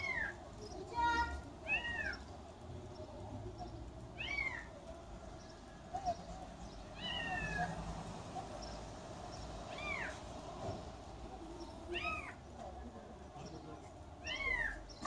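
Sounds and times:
kitten meowing: 1.7s - 2.2s, 7.0s - 7.8s, 14.2s - 14.8s.

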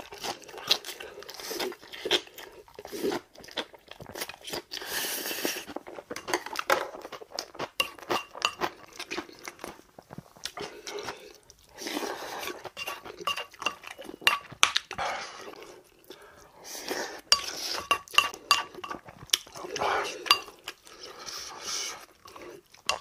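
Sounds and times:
wet chewing and crunching: 0.0s - 16.5s, 17.1s - 23.0s
spoon clinking on ceramic bowl: 12.8s - 14.5s, 17.4s - 19.0s.

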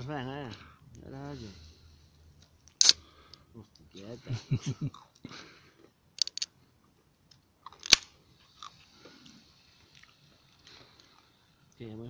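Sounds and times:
fox chewing and crunching food: 4.9s - 11.4s.

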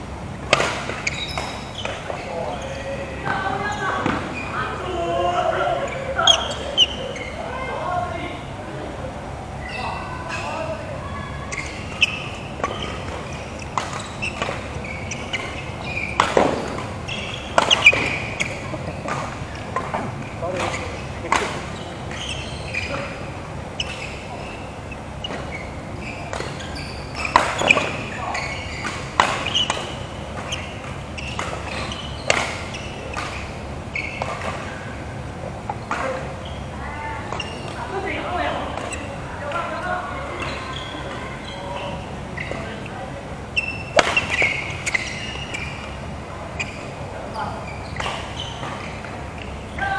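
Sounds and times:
shoes squeaking on court floor: 0.3s - 8.6s, 9.4s - 49.9s
racket striking shuttlecock: 11.9s - 22.2s, 27.2s - 28.1s, 28.8s - 33.6s, 43.9s - 46.0s.

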